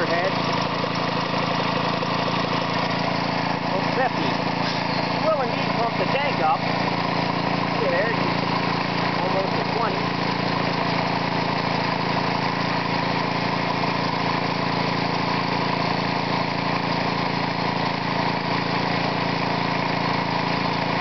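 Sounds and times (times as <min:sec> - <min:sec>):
air compressor engine running: 0:00.0 - 0:21.0.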